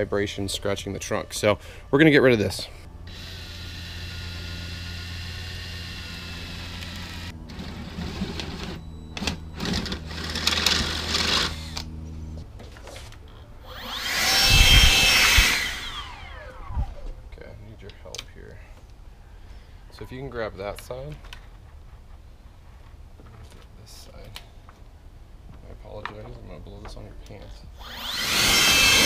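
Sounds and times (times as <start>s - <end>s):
cordless blower whirring: 3.1s - 12.1s, 13.6s - 17.2s, 27.8s - 29.0s.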